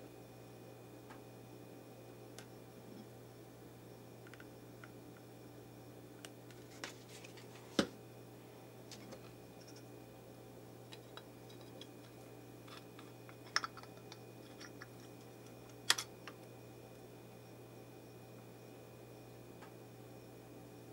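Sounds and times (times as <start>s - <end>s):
small clicks and taps of parts: 4.2s - 5.0s.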